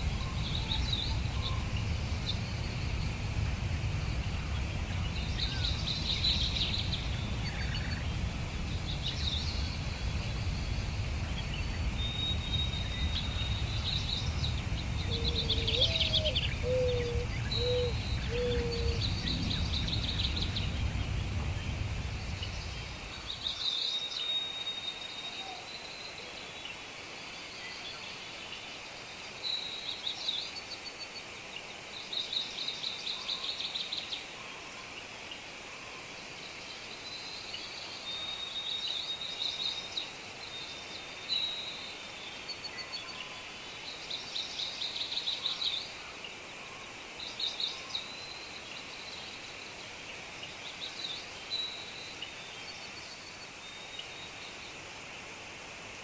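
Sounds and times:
low background rumble: 0.0s - 23.5s.

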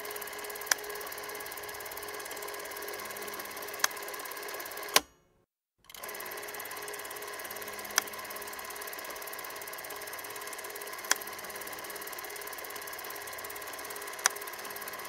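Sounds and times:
small machine whirring and rattling: 0.0s - 5.0s, 5.9s - 15.0s
sharp click: 4.9s - 5.2s.

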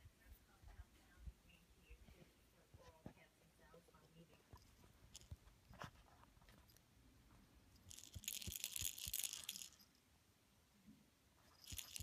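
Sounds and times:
toy crinkling: 4.5s - 6.8s, 7.7s - 10.0s, 11.4s - 12.0s.

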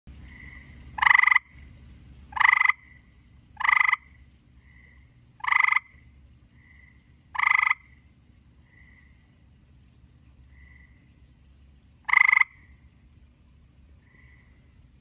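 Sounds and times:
tree frog trilling: 0.2s - 1.7s, 2.3s - 9.3s, 12.0s - 12.9s, 14.0s - 14.6s.

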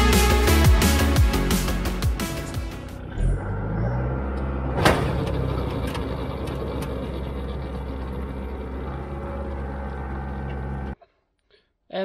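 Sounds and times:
tractor diesel engine running: 1.5s - 11.0s.

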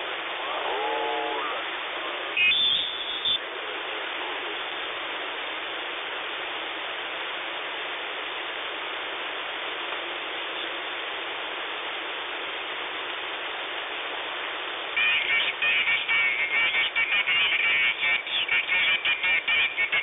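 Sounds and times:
choppy radio signal with tones: 0.0s - 5.1s, 14.9s - 20.0s
radio band noise hiss: 0.0s - 20.0s.

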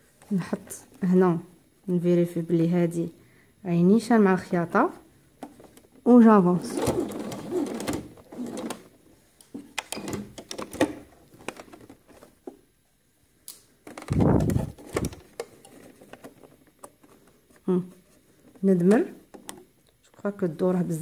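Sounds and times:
sewing machine stitching: 6.6s - 8.9s.

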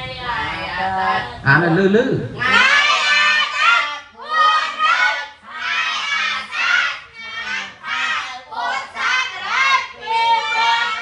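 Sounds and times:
children chanting in unison: 2.4s - 11.0s.

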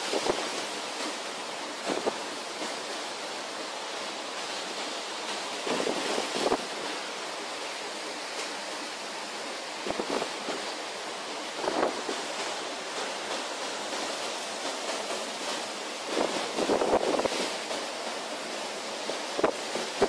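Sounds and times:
storm wind and rough sea: 0.0s - 20.0s
wind gusts buffeting microphone: 9.8s - 10.7s, 11.6s - 12.4s, 16.1s - 17.6s.

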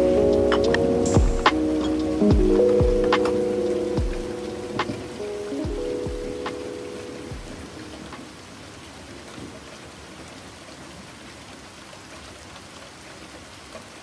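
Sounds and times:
soft synth pad: 0.0s - 8.2s
heavy rain: 0.0s - 14.0s.

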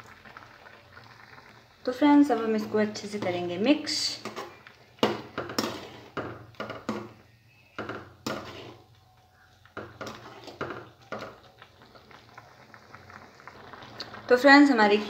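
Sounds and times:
metal ladle scraping a pan: 2.3s - 9.0s, 9.8s - 11.4s.

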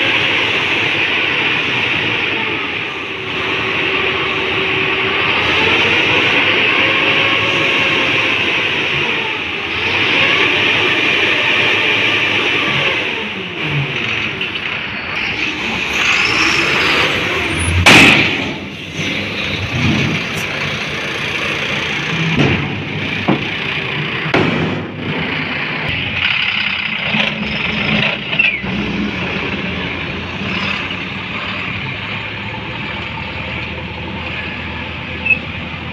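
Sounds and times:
diesel truck engine revving: 0.0s - 35.9s
loud bang: 17.7s - 20.3s, 24.3s - 25.2s.

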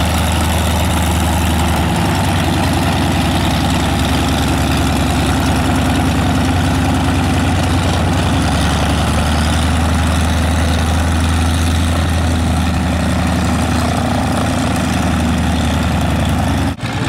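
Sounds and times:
aircraft engine idling: 0.0s - 17.0s.

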